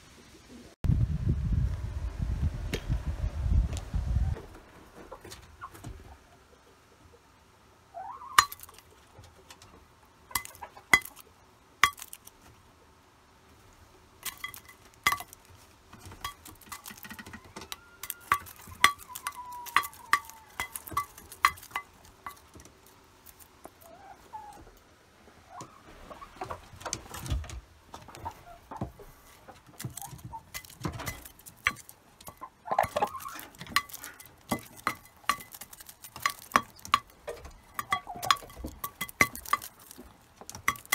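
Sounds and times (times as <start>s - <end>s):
beaks clinking on metal bowl: 8.4s - 8.8s, 10.3s - 11.2s, 11.8s - 12.3s, 14.2s - 15.5s, 16.1s - 23.4s, 29.8s - 40.9s
hen calls: 17.2s - 21.3s.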